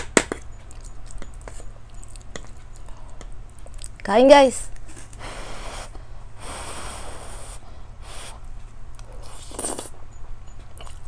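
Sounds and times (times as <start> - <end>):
steady low hum: 0.0 - 11.0
breaths and sniffs through nose: 5.0 - 8.5.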